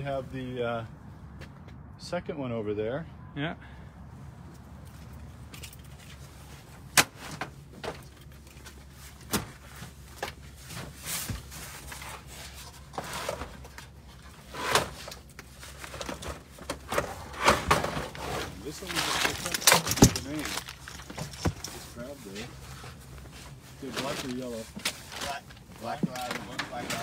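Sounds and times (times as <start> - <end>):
rustling and scraping: 4.4 - 27.0.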